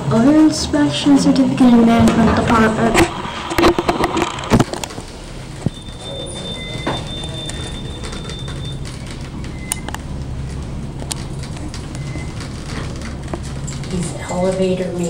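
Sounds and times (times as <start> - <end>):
elevator rumble and hum: 0.0 - 15.0
thin high whine: 1.8 - 10.0.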